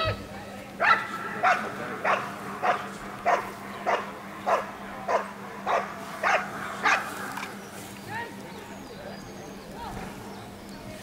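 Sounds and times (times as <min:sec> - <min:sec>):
dog barking: 0:00.8 - 0:07.2.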